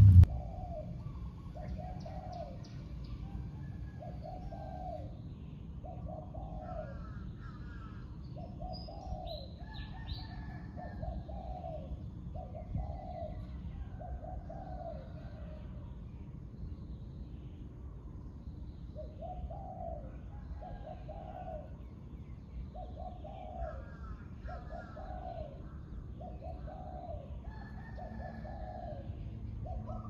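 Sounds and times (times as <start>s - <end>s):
dove cooing: 3.9s - 5.1s, 5.8s - 7.1s, 8.4s - 9.5s, 10.2s - 15.6s, 19.0s - 21.8s, 22.8s - 30.0s.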